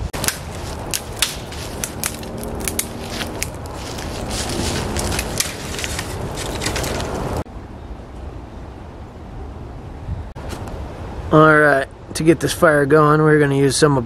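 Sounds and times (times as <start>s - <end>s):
dry twigs snapping: 0.1s - 7.4s.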